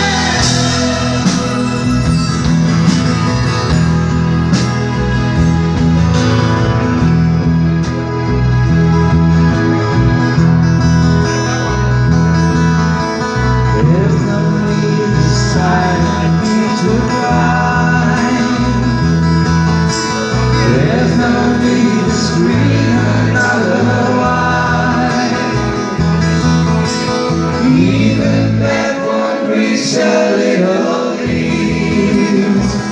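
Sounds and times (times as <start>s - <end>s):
man singing: 0.0s - 2.0s, 13.7s - 19.4s, 20.1s - 26.0s, 27.4s - 32.9s
drums with cymbals: 0.0s - 6.5s
bass line: 0.0s - 28.9s, 31.2s - 32.9s
guitars: 0.0s - 32.9s.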